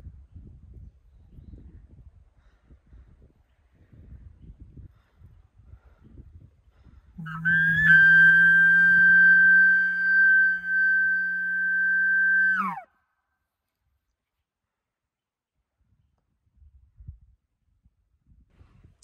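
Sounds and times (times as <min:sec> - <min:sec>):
elk bugle call through tube: 0:07.2 - 0:12.9.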